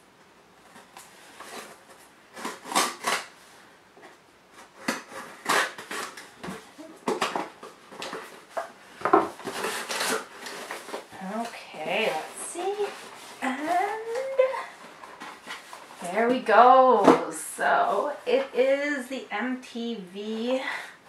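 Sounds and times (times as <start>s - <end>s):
package rustling and crinkling: 4.0s - 16.6s.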